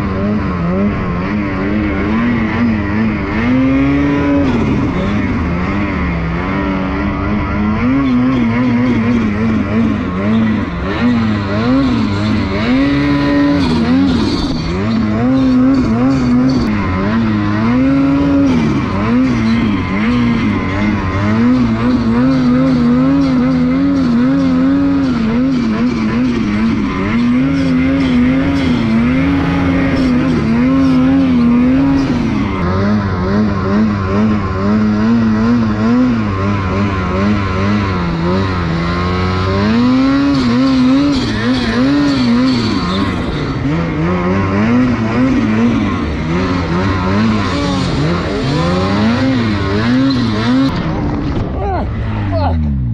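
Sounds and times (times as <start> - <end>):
snowmobile engine revving: 0.0 - 52.9.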